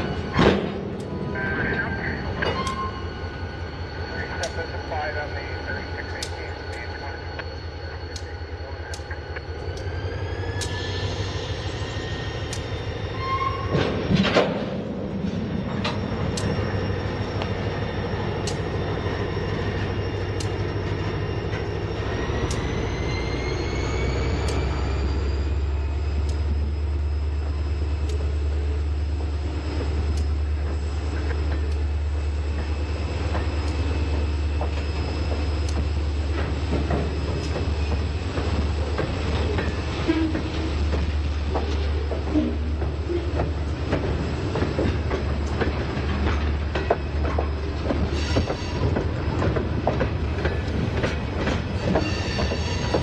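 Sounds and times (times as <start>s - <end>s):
diesel locomotive engine drone: 0.0s - 53.0s
train squeal and clanking: 0.0s - 53.0s.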